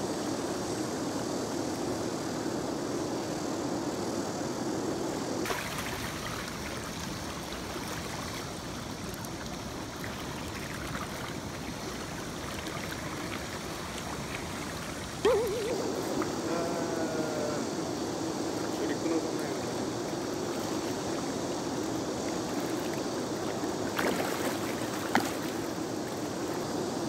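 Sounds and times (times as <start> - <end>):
river rushing over stones: 5.4 - 27.0.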